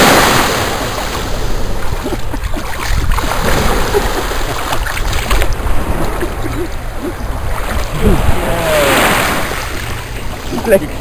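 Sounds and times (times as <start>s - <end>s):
seawater washing and splashing: 0.0s - 11.0s.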